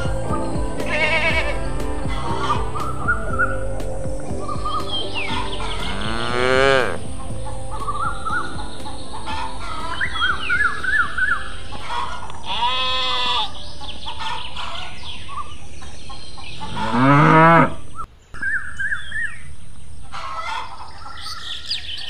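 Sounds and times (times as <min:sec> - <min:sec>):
birds chirping: 0:00.0 - 0:22.0
cow mooing: 0:05.4 - 0:07.0, 0:16.6 - 0:17.8.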